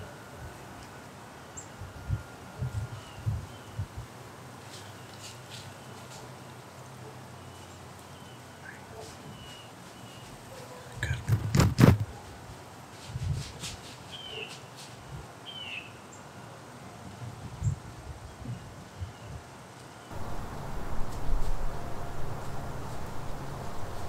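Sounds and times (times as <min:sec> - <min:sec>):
faint outdoor background noise: 0:00.0 - 0:24.0
loud knocks and rustling: 0:11.3 - 0:12.1.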